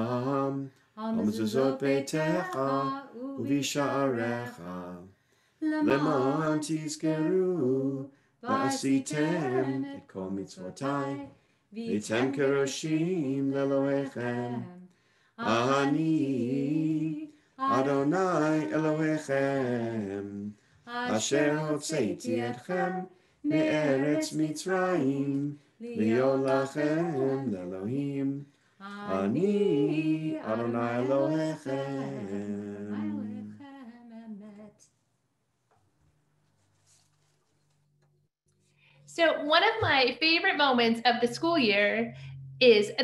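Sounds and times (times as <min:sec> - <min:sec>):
man and woman singing unaccompanied: 0:00.0 - 0:34.8
breaths: 0:05.1 - 0:05.6, 0:08.1 - 0:08.4, 0:11.3 - 0:11.8, 0:14.9 - 0:15.4, 0:17.3 - 0:17.6, 0:20.6 - 0:20.9, 0:23.1 - 0:23.5, 0:28.4 - 0:28.8, 0:38.6 - 0:39.1, 0:42.1 - 0:42.5.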